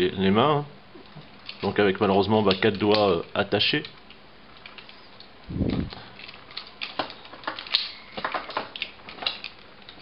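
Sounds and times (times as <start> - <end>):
plastic toy parts clicking: 2.5 - 3.2, 6.2 - 10.0.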